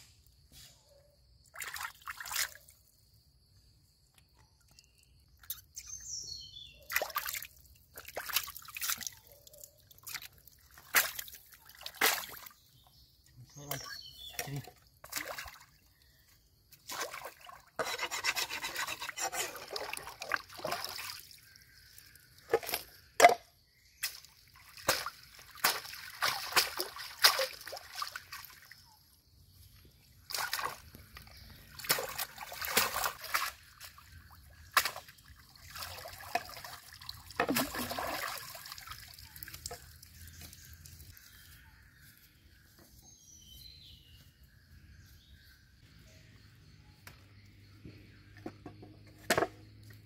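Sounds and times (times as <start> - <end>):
water splashing and sloshing: 1.4 - 2.9, 6.8 - 13.0, 13.7 - 41.6.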